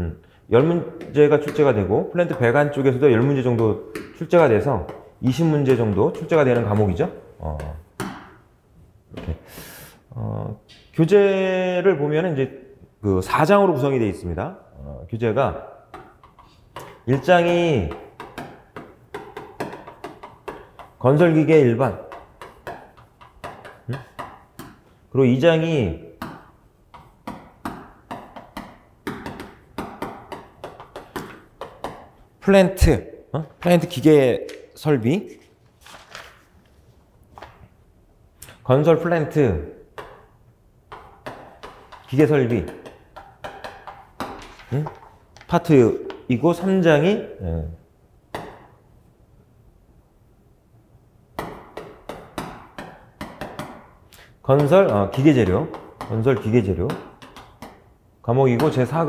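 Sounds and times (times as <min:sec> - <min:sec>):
chalk tapping on a chalkboard: 0:04.8 - 0:08.4, 0:15.9 - 0:24.9, 0:26.2 - 0:32.2, 0:40.9 - 0:46.7, 0:51.4 - 0:57.9.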